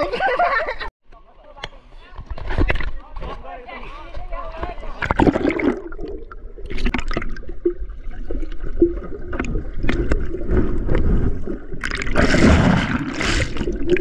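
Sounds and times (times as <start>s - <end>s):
churning water and bubbles: 5.0s - 14.0s.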